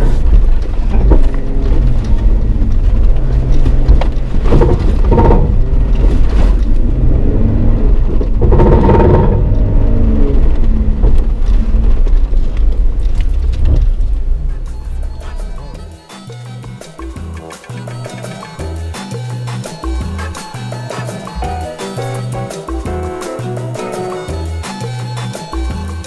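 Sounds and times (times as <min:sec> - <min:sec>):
knocks and rattles over bumps: 0:00.0 - 0:26.0
engine revving under load: 0:00.9 - 0:12.0.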